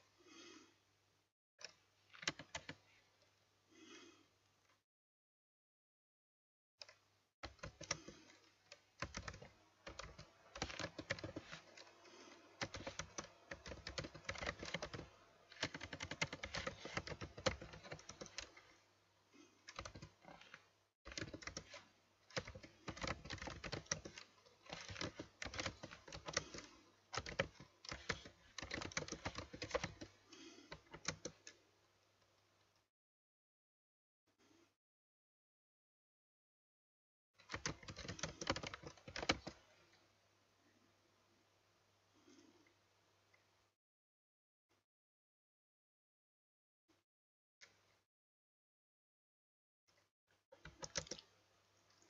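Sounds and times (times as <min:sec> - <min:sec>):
fast typing on keyboard: 0:02.2 - 0:02.8, 0:07.4 - 0:18.7, 0:19.7 - 0:31.6, 0:37.4 - 0:39.6, 0:50.6 - 0:51.2.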